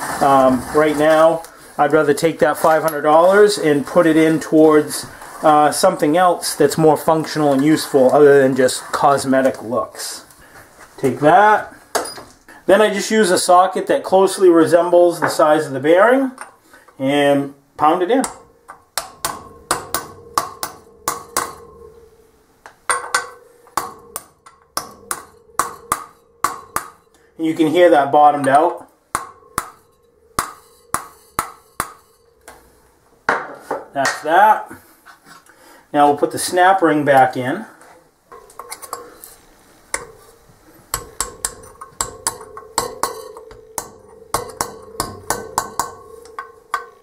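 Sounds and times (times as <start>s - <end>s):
hammer striking metal socket: 39.9s - 47.0s.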